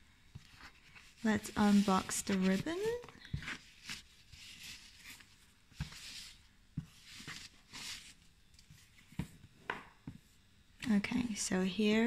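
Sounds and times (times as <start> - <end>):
ribbon rustling: 0.4 - 9.3.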